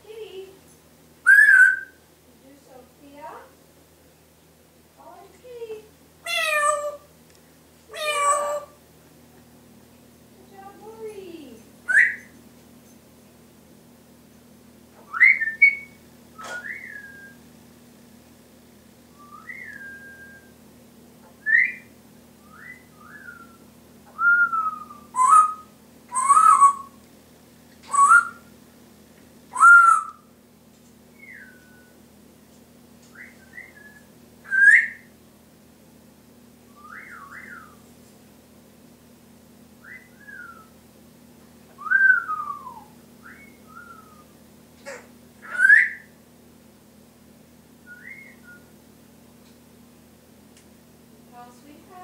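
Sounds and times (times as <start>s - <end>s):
parrot whistling: 1.2s - 2.0s, 6.2s - 7.0s, 7.9s - 8.8s, 11.9s - 12.3s, 15.0s - 17.4s, 19.2s - 20.5s, 21.4s - 27.0s, 27.9s - 28.5s, 29.5s - 30.3s, 31.2s - 32.0s, 33.1s - 35.1s, 36.8s - 37.8s, 39.8s - 40.7s, 41.8s - 46.2s, 47.8s - 48.7s
rough parrot calls: 6.2s - 7.1s, 7.9s - 8.8s, 29.5s - 30.3s, 44.8s - 46.1s.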